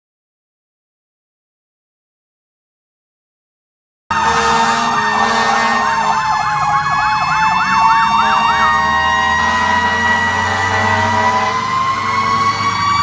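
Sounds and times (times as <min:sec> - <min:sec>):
fire truck siren wail: 0:04.1 - 0:13.0
fire truck siren yelp: 0:04.1 - 0:13.0.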